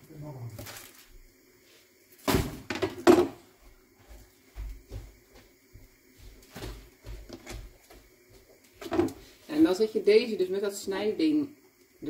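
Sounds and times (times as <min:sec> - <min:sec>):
sharp knocks on kitchen counter: 0:02.3 - 0:03.4.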